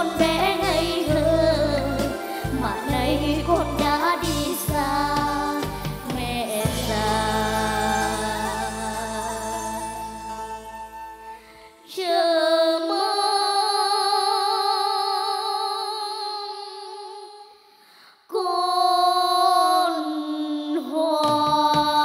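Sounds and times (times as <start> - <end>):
children singing: 0.0 - 9.1.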